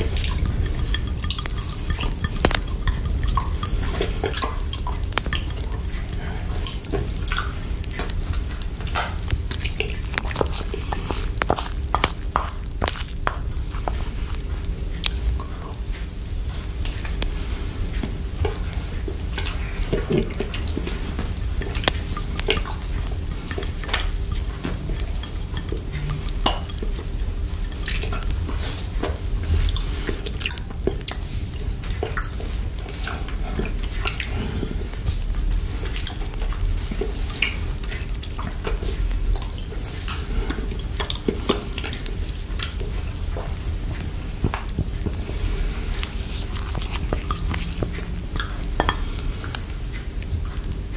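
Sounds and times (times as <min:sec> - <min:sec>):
low rumble: 0:00.0 - 0:23.6
crackling fire: 0:00.0 - 0:50.9
lollipop stirred in plastic bowl: 0:00.0 - 0:50.9
wet licking and sucking: 0:00.0 - 0:50.9.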